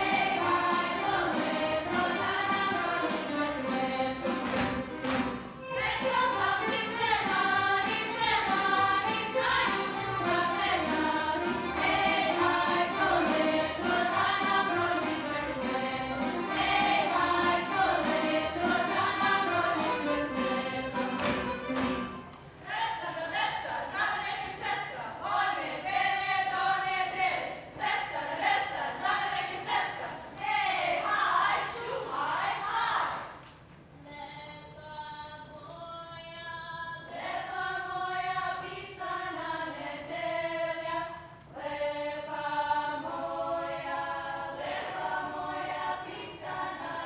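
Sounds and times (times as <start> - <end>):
string band playing: 0.0 - 22.3
group singing folk song: 0.0 - 33.4, 36.4 - 47.0.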